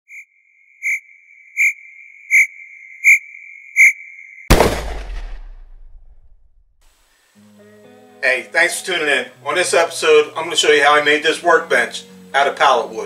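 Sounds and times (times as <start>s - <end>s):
electronic beeps: 0.1s - 4.4s
steady high electronic tone: 0.1s - 4.5s
loud boom: 4.5s - 6.7s.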